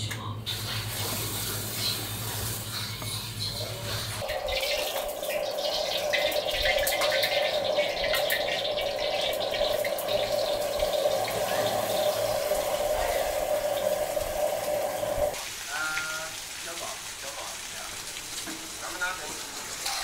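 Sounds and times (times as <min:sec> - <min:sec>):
beef sizzling in a wok: 0:00.5 - 0:20.0
steady hum: 0:02.0 - 0:15.4.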